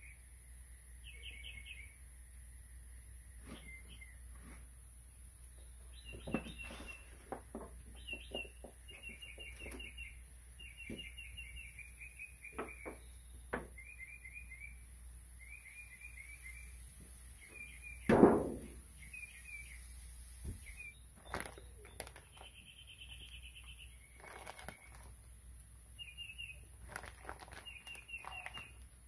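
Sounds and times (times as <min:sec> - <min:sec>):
songbird chirping trills: 0:00.0 - 0:04.3, 0:05.4 - 0:18.1, 0:18.8 - 0:29.0.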